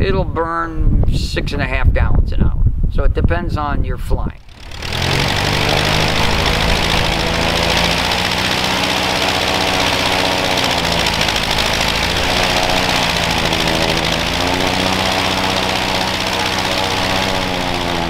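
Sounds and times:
propeller engine idling: 0:04.4 - 0:18.0.

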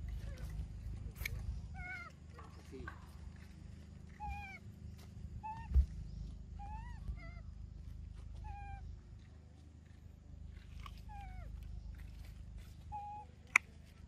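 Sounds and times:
baby monkey crying: 0:01.6 - 0:02.2, 0:04.1 - 0:04.6, 0:05.4 - 0:05.9, 0:06.6 - 0:07.5, 0:08.4 - 0:08.9, 0:12.9 - 0:13.3.

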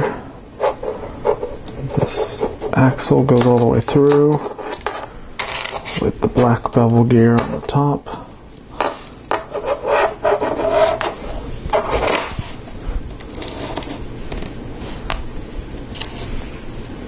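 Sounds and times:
plastic parts clicking and rubbing: 0:01.6 - 0:07.8.

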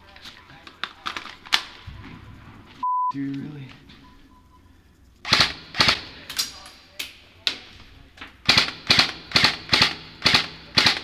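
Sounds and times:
airsoft rifle shots: 0:05.2 - 0:06.4, 0:08.4 - 0:11.0.

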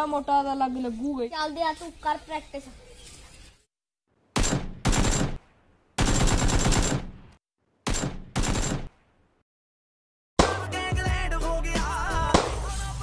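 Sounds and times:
machine-gun fire bursts: 0:04.4 - 0:05.4, 0:06.0 - 0:07.2, 0:07.9 - 0:08.9.

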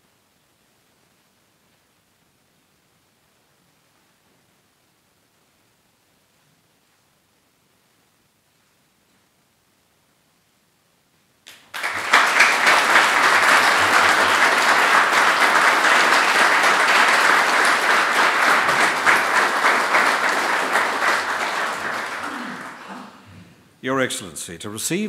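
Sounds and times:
audience applauding: 0:11.5 - 0:23.3.

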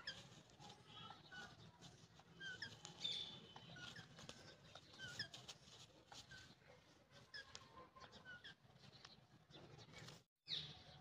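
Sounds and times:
parakeets chirping: 0:01.1 - 0:10.6.

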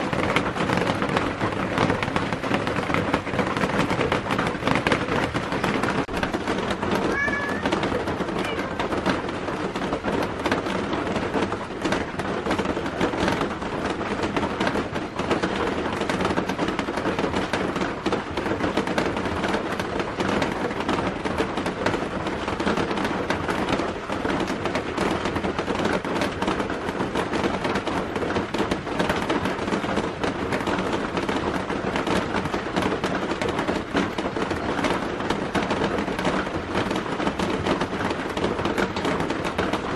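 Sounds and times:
cat meowing: 0:07.0 - 0:07.8.

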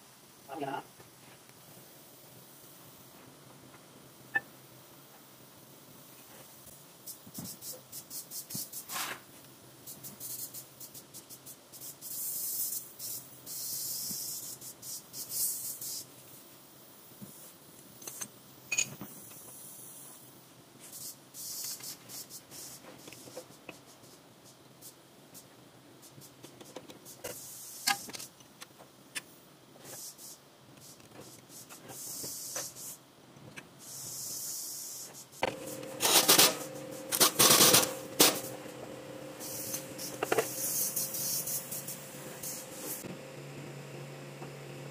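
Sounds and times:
scraping hissing passes: 0:35.6 - 0:43.1.

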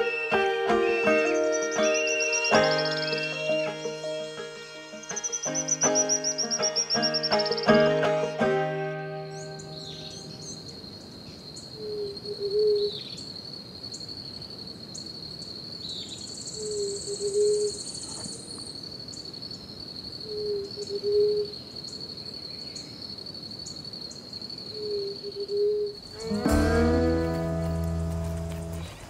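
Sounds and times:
faint high chirps: 0:00.0 - 0:07.8
insect high-pitched trill: 0:00.0 - 0:07.8, 0:23.6 - 0:29.0
low two-part hooting call: 0:00.0 - 0:10.5.

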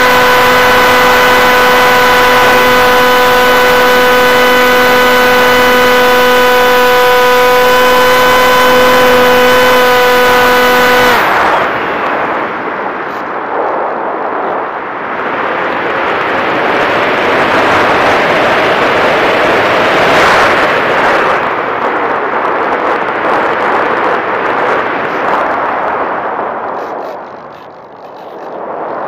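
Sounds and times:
faint steady hum: 0:00.0 - 0:19.1
wind buffeting microphone: 0:00.0 - 0:29.0.

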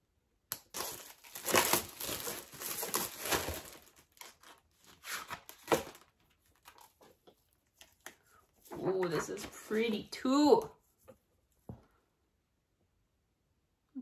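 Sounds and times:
plastic wrapping crinkling and tearing: 0:00.5 - 0:07.1.

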